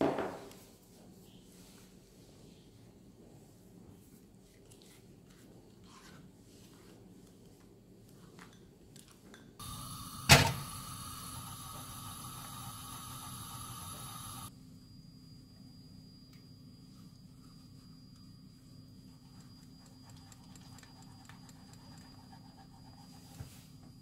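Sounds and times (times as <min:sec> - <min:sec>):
hum with high whine: 0:09.6 - 0:22.3.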